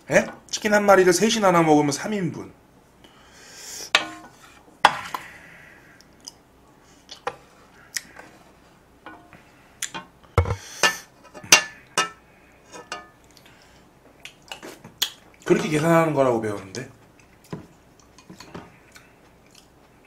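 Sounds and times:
ladle clinking on plate: 10.4 - 12.2.

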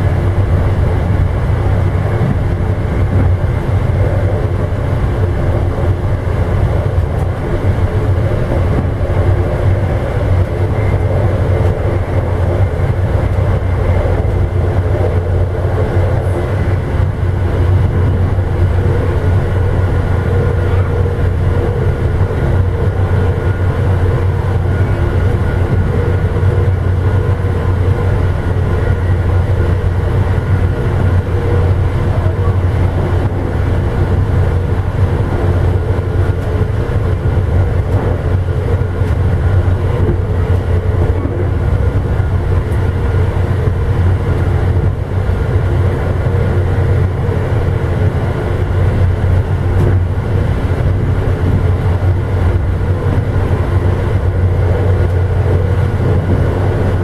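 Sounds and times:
train wheels running on rails: 0.0 - 57.0.

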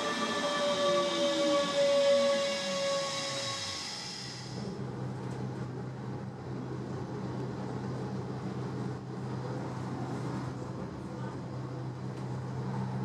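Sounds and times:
electric train motor tones: 0.0 - 4.7
train interior hum and rumble: 0.0 - 13.0.

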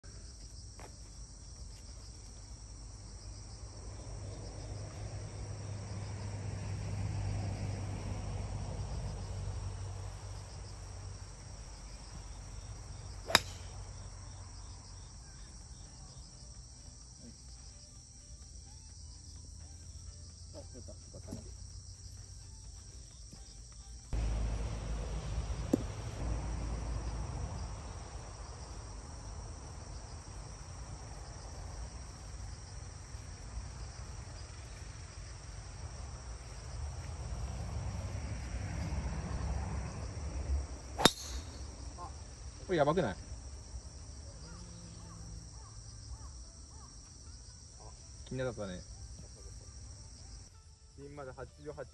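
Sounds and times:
insects and crickets trilling: 0.0 - 51.9
golf club striking ball: 13.2 - 13.8, 25.5 - 26.2, 41.0 - 41.7.

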